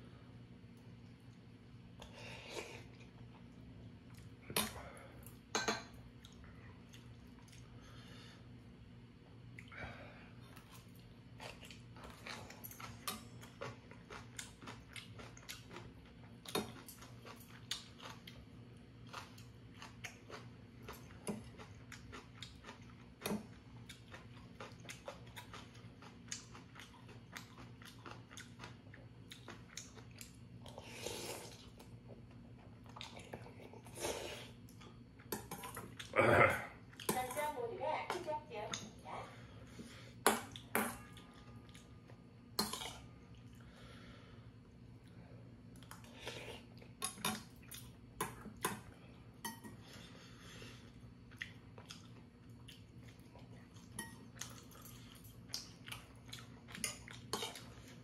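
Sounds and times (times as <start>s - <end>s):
chewing with wet clicks: 6.1s - 7.7s, 9.4s - 9.7s, 10.5s - 30.8s, 31.4s - 33.7s, 34.6s - 36.2s, 40.2s - 43.7s, 45.0s - 49.0s, 50.8s - 58.0s.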